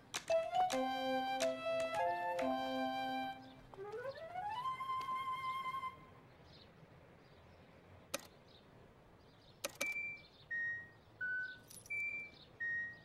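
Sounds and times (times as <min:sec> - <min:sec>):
sharp clicks: 0:08.1 - 0:08.4, 0:09.6 - 0:10.2
crossing signal beeps: 0:09.8 - 0:13.0.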